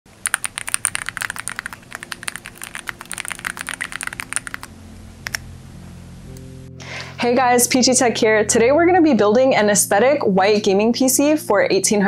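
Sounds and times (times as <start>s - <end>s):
computer keyboard typing: 0.2s - 5.4s
low hum: 0.2s - 10.1s.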